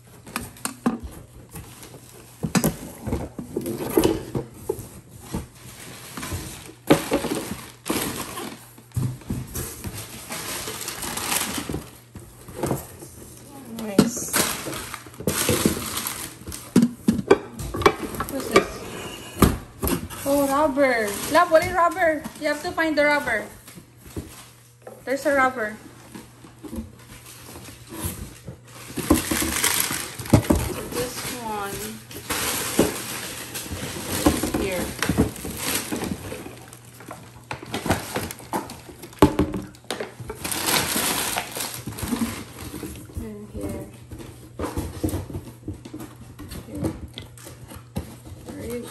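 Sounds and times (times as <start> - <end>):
plastic packaging crinkling: 9.6 - 12.1, 13.5 - 16.8, 26.9 - 43.1.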